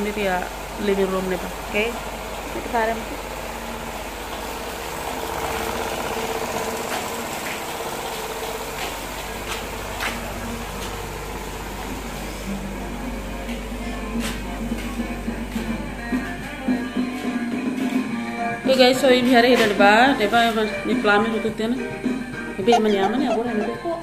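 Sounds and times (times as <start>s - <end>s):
motor humming: 0.0s - 16.5s, 22.6s - 24.0s.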